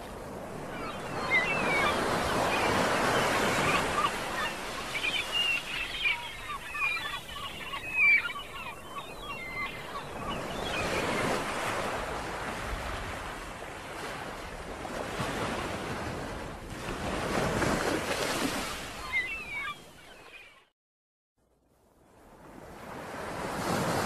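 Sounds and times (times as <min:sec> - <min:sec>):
small birds chirping: 0:00.7 - 0:11.3.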